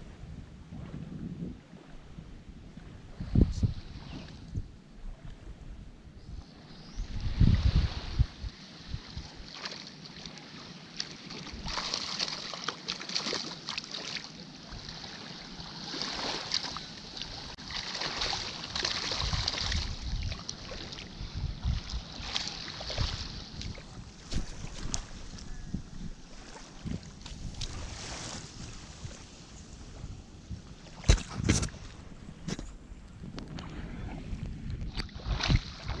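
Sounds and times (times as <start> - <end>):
wind buffeting microphone: 0.0 - 9.5, 18.6 - 36.0
small waves washing on sand: 7.2 - 25.5, 26.1 - 32.7, 33.6 - 36.0.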